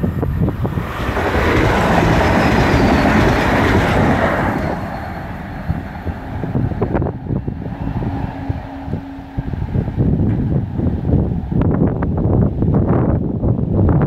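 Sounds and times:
train passing: 0.0 - 13.1.

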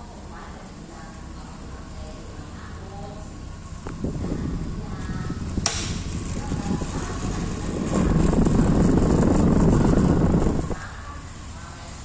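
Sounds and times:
fan blowing air: 0.0 - 12.0
fan switch click: 5.6 - 6.2.

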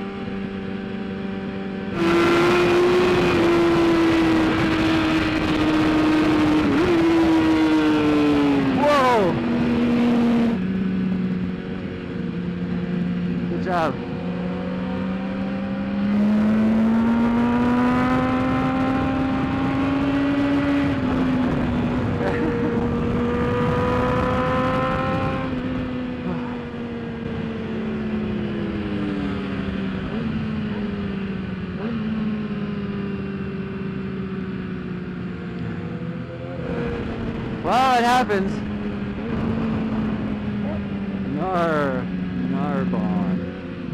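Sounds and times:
motorcycle engine running: 0.0 - 43.9
wind rush: 18.1 - 27.9, 35.8 - 42.0.

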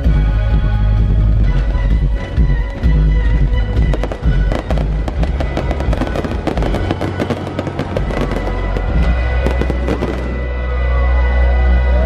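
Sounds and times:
music with heavy bass: 0.0 - 12.0
fireworks crackling and popping: 2.2 - 10.5.

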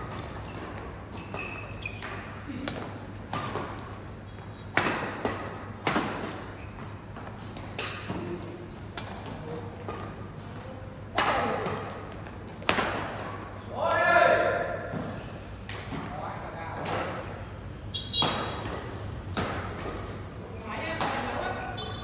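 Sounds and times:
racket hitting shuttlecock: 0.0 - 10.4, 11.1 - 13.6, 14.4 - 21.7
shoes squeaking on court: 0.0 - 12.6, 16.9 - 20.4.

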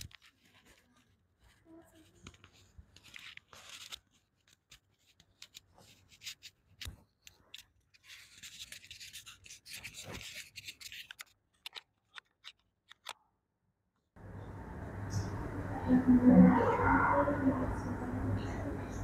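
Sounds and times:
rustling and scratching: 0.0 - 12.6.

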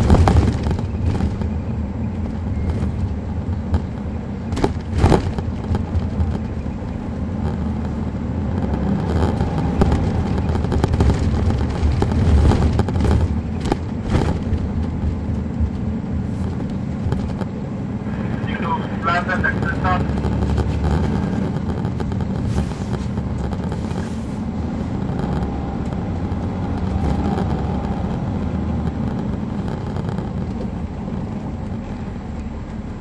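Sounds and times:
sharp knocks or rattles: 0.0 - 17.7, 19.4 - 24.1, 24.7 - 31.9
diesel engine low rumble: 0.0 - 33.0.

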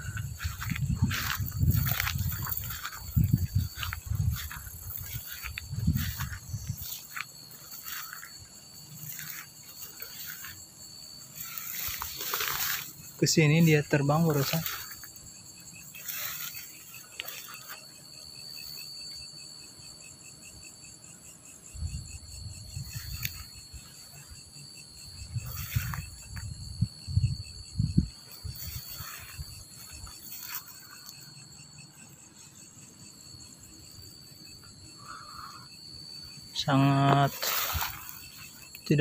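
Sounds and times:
footsteps thudding: 0.0 - 8.0
grass rustling: 0.0 - 18.9, 22.6 - 27.0, 27.8 - 35.4, 36.1 - 39.0
insect high trill: 0.0 - 39.0
insect pulsing chirp: 0.0 - 39.0.

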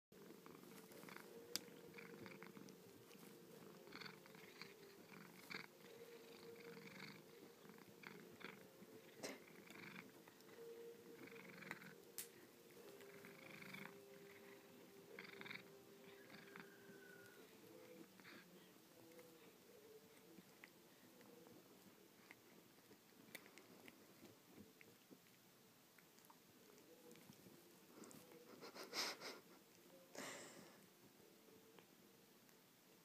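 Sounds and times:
cat purring: 0.2 - 30.8.

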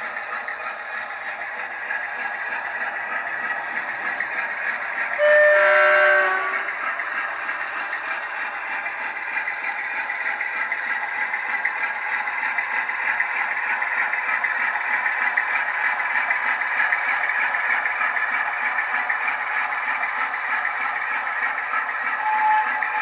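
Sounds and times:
model diesel engine running: 0.0 - 23.0
two-tone horn: 5.2 - 6.8.

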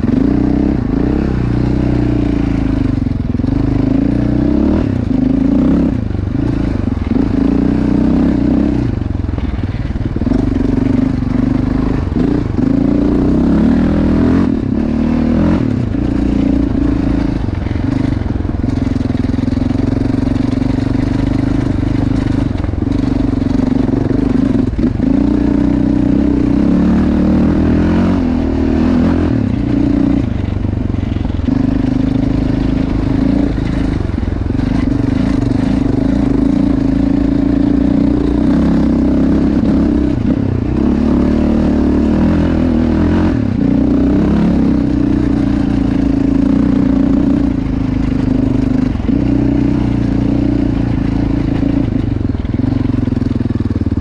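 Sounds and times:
quad engine revving: 0.0 - 54.0.

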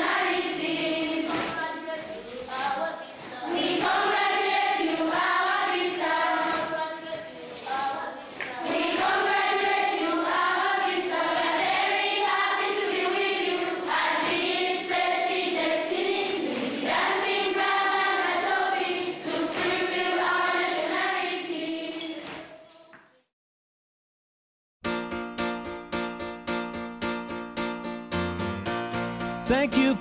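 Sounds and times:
choir with children singing: 0.0 - 22.7.

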